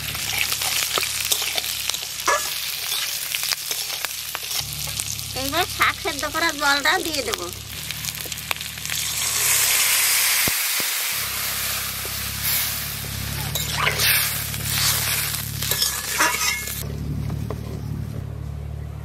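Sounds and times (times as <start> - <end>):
water sizzling in hot oil: 0.0 - 16.8.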